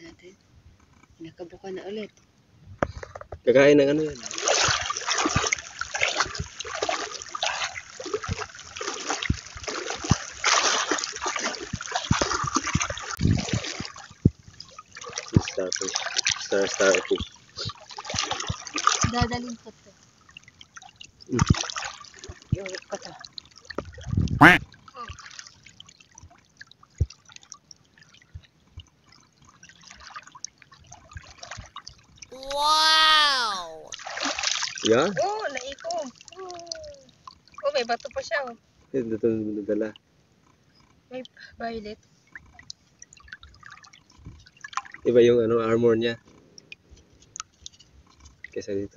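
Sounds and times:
water dripping and trickling: 4.0 - 32.3, 33.9 - 38.6, 42.3 - 45.2, 46.5 - 48.6
legs wading through seawater: 4.1 - 24.1, 24.8 - 32.2, 33.9 - 38.4.

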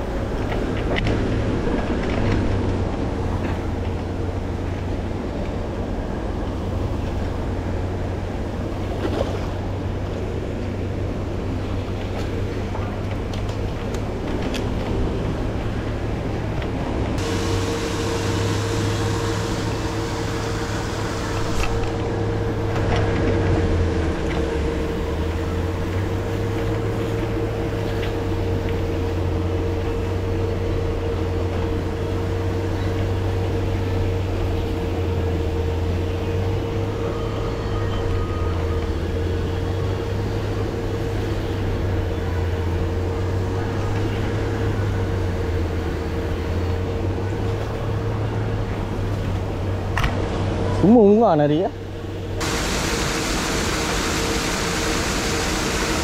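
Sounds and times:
pond aerator motors humming: 0.0 - 56.0
churned water rushing: 5.6 - 29.7, 52.3 - 56.0.

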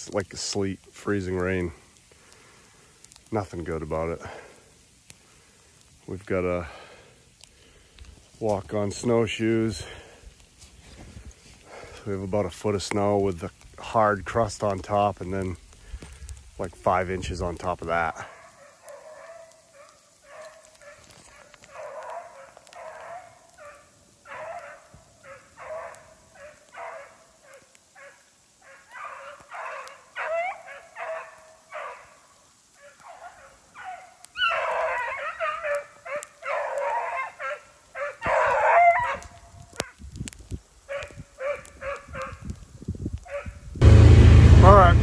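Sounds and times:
hounds baying: 18.0 - 40.0, 40.9 - 42.4, 43.2 - 43.6.

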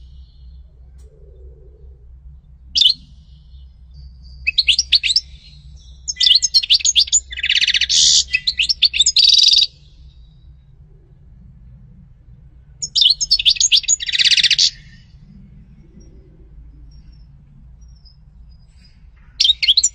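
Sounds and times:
goldfinch singing: 2.7 - 10.5, 12.8 - 15.2, 17.9 - 19.9.

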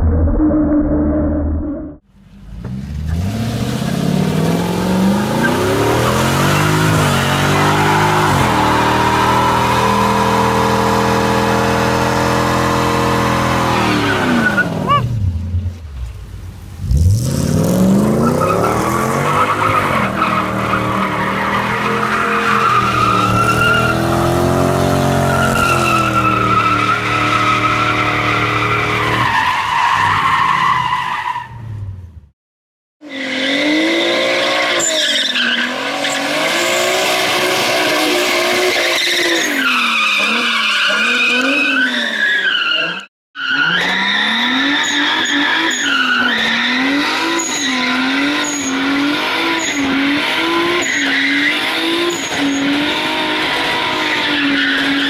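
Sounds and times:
car engine revving: 2.4 - 15.5, 16.8 - 29.1.

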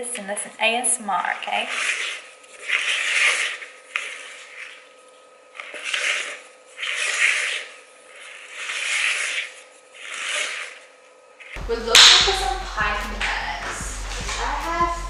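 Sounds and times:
spatula scraping thick batter: 1.3 - 11.6.

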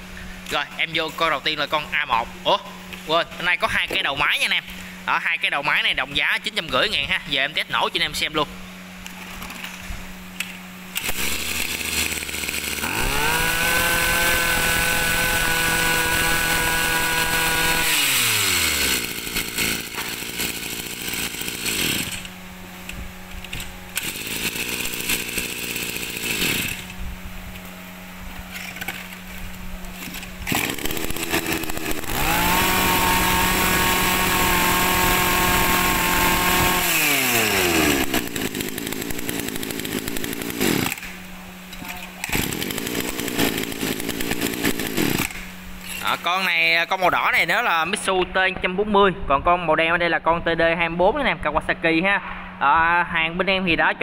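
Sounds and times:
brushcutter engines revving: 10.9 - 22.4, 23.4 - 27.0, 29.9 - 41.2, 42.2 - 47.8.

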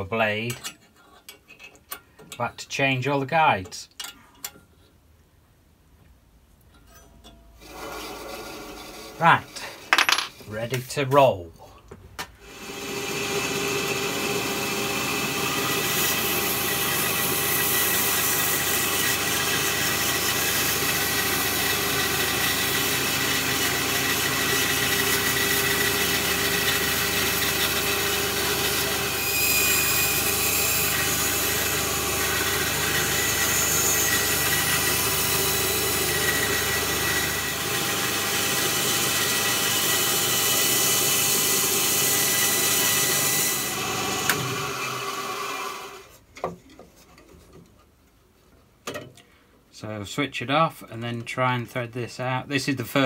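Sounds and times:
bandsaw cutting wood: 7.6 - 9.8, 12.4 - 46.1.

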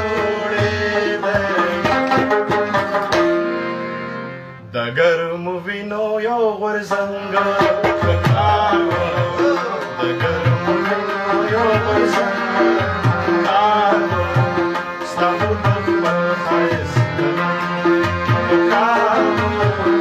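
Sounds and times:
man singing: 0.0 - 3.0, 4.6 - 20.0
harmonium chords: 0.0 - 20.0
plucked lute notes: 1.6 - 4.1.

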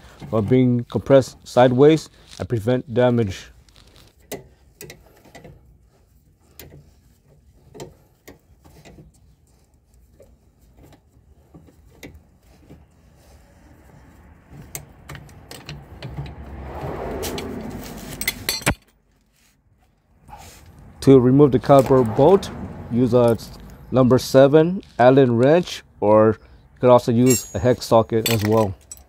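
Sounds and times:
metal rubbing and scraping: 17.2 - 19.6, 27.2 - 29.0
metallic clicks and rattles: 27.2 - 29.0.

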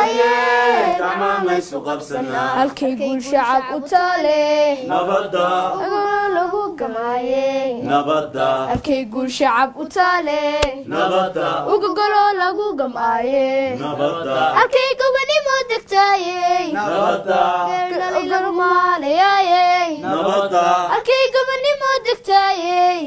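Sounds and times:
woman singing unaccompanied: 0.0 - 10.9, 11.6 - 20.1, 20.9 - 23.0.

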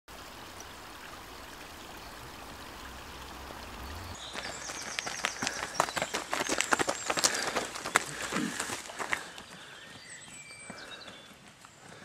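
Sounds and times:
forest stream rushing: 0.1 - 12.0
footsteps running on forest floor: 4.2 - 12.0.

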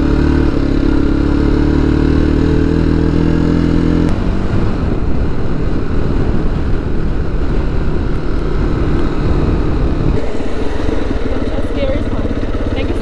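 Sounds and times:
motorcycle engine running: 0.0 - 13.0
wind rushing over microphone: 4.1 - 13.0.

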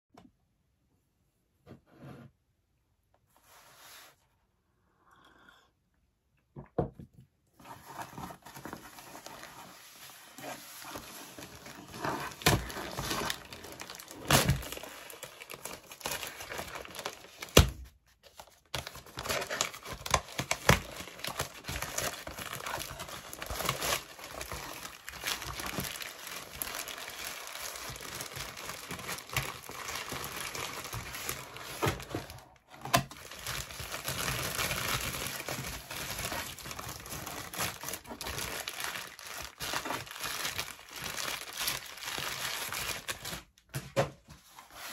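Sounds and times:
plastic bag crinkling and tearing: 7.8 - 43.6.

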